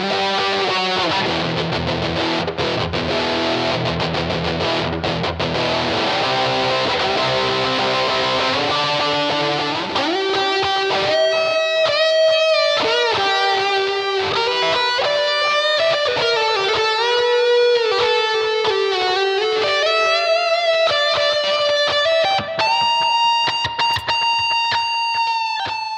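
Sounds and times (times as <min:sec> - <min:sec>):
electric guitar lead with slides: 0:00.0 - 0:25.9.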